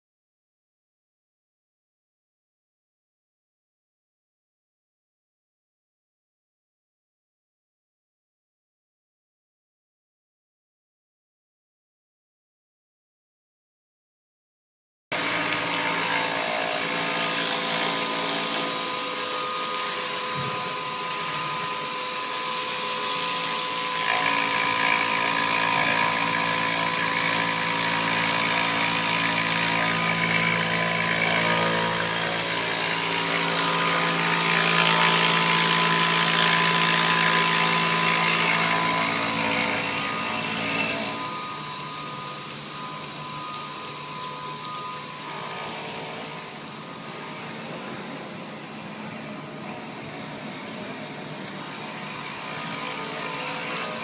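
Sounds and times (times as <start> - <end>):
machine spindle whine: 15.2 - 54.0.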